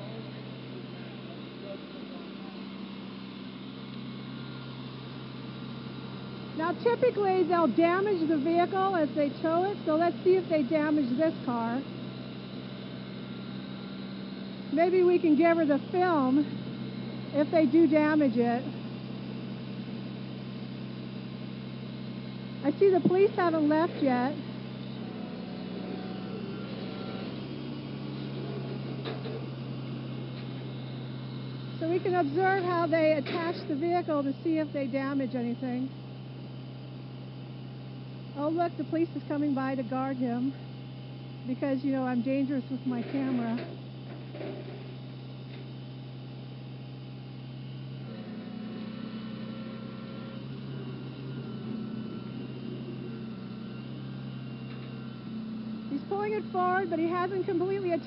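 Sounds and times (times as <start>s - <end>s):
vehicle engine idling: 0.0s - 58.0s.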